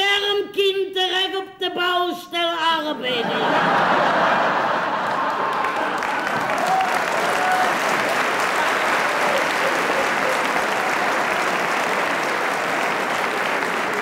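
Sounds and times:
audience laughter: 3.1s - 6.8s, 8.4s - 13.8s
audience applauding: 3.5s - 14.0s.

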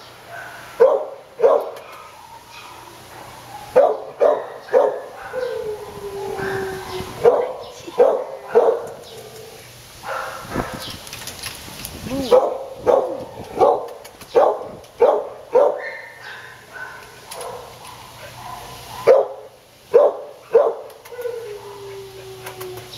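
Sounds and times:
dogs barking: 0.2s - 10.9s, 12.2s - 22.0s
dog long held cry: 2.2s - 8.8s, 20.6s - 22.9s.

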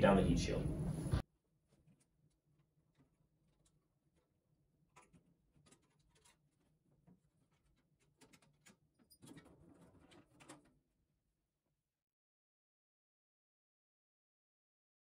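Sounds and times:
clips clicking and scraping: 5.0s - 10.7s.

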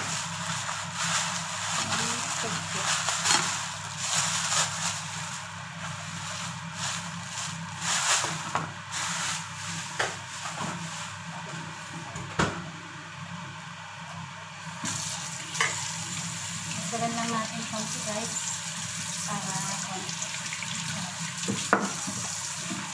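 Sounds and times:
plastic bag crinkling: 0.0s - 11.2s.

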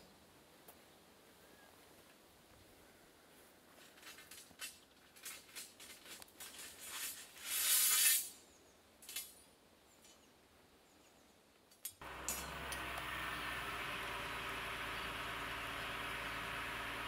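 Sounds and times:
truck engine hum: 12.0s - 17.0s
metal bars clinking: 12.2s - 12.8s.

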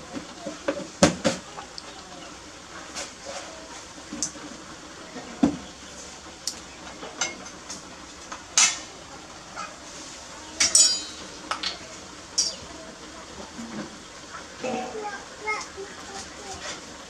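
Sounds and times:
kitchenware clinking on countertop: 10.6s - 11.8s.

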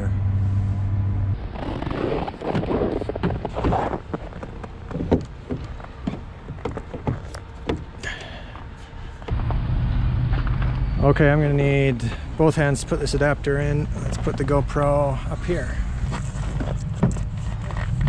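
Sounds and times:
low hum inside car: 0.0s - 1.4s.

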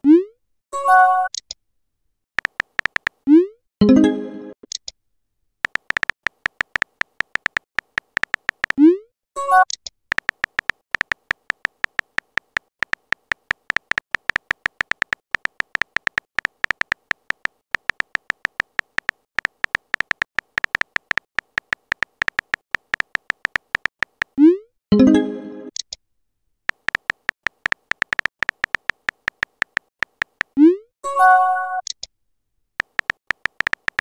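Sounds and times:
keyboard typing clicks: 2.4s - 3.2s, 5.6s - 8.8s, 9.6s - 24.4s, 26.7s - 30.7s, 32.8s - 34.0s.

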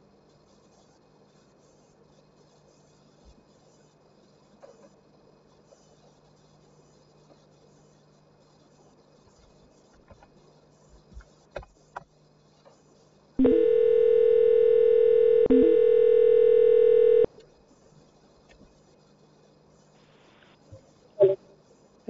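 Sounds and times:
buzzy telephone tone: 13.4s - 17.3s.

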